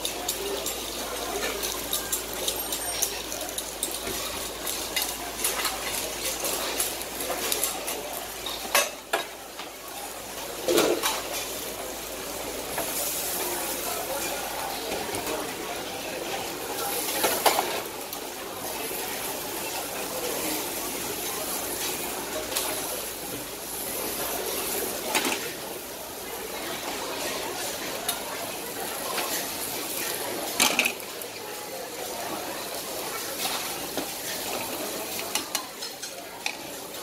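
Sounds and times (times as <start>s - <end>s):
metal utensils clinking: 0.0s - 9.3s, 30.4s - 31.0s
food hissing on griddle: 9.8s - 14.9s.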